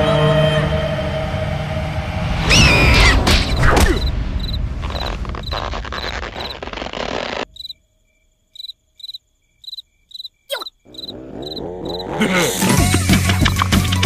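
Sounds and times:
quick falling whistle: 2.5 - 4.1
cartoon crickets chirping: 2.6 - 12.2.

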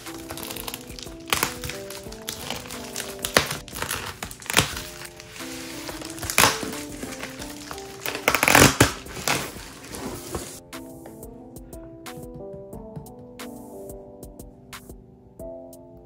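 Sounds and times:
bubble wrap crinkling: 0.0 - 10.6
soft background music: 0.0 - 16.0.

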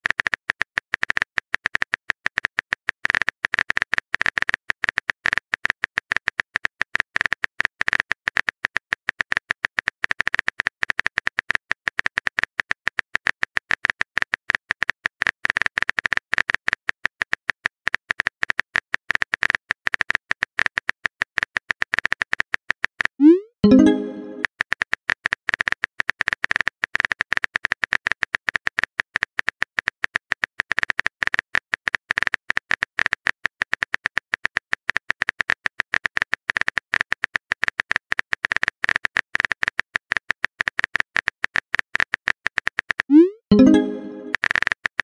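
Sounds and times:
typing sound effect clicks: 23.2 - 24.5, 42.9 - 44.6.

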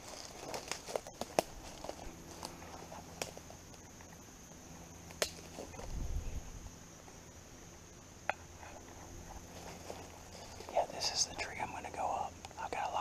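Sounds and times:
twigs snapping: 0.0 - 3.9, 5.1 - 6.0
faint forest background: 0.0 - 13.0.

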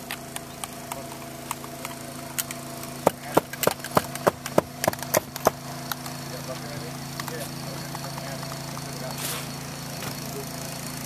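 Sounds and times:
steady engine hum: 0.0 - 11.0
hammer striking nails: 2.4 - 6.1.

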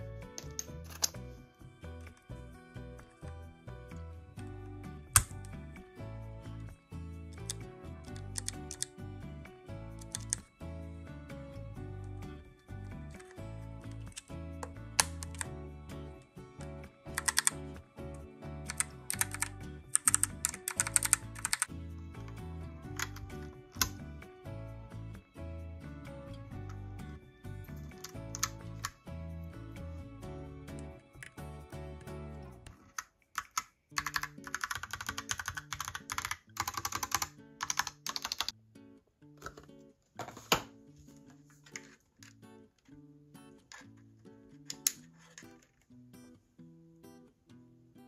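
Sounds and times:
background music: 0.0 - 38.6
mechanical keyboard typing: 5.1 - 5.4, 7.4 - 8.9, 10.0 - 10.4, 14.1 - 15.5, 17.1 - 17.6, 18.7 - 21.7, 23.0 - 23.9, 27.9 - 28.9, 32.9 - 38.5.

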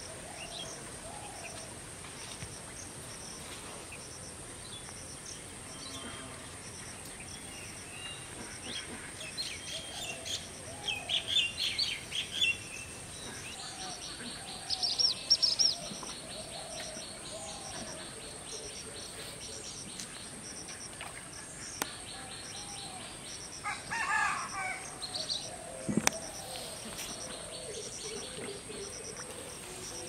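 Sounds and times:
small birds chirping: 6.9 - 23.6
insect drone: 9.2 - 30.0
rooster call: 23.6 - 25.5.

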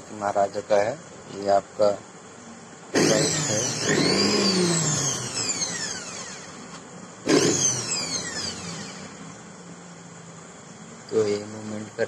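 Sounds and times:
mixer grinder motor whining: 3.0 - 9.4.

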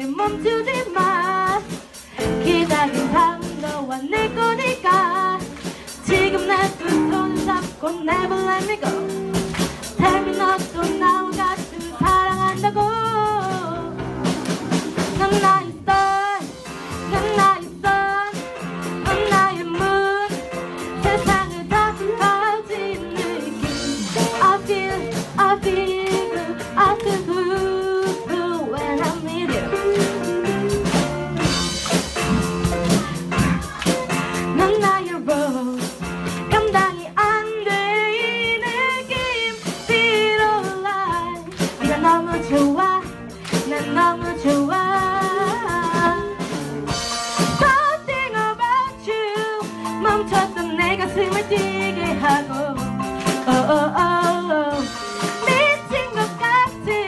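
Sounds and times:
girl singing: 0.0 - 14.0, 15.0 - 31.1, 32.6 - 46.5, 47.5 - 52.8, 53.4 - 57.0
drum kit beat: 0.0 - 57.0
electric guitar: 0.0 - 57.0
electric bass: 11.3 - 16.0, 22.9 - 34.8.

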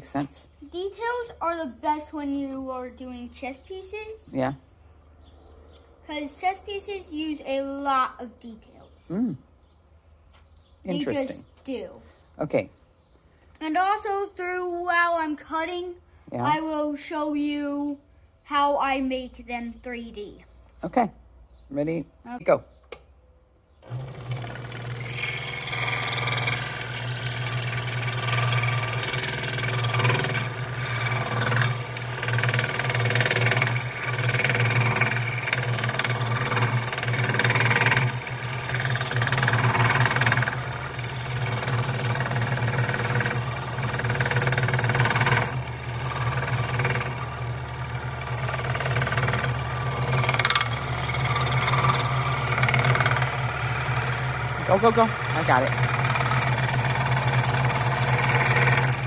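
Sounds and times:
scroll saw cutting wood: 23.8 - 59.0.

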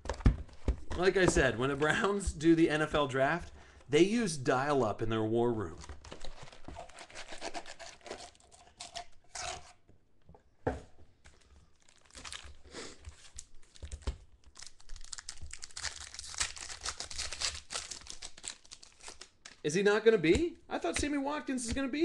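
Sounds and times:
foil wrappers crinkling: 11.3 - 19.7
pack tearing open: 11.8 - 19.6.

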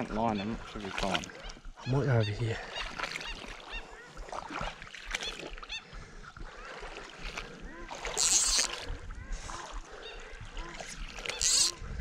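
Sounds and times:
water sloshing from wading: 0.0 - 12.0
water splash: 2.9 - 5.6
small birds chirping: 7.7 - 11.8.

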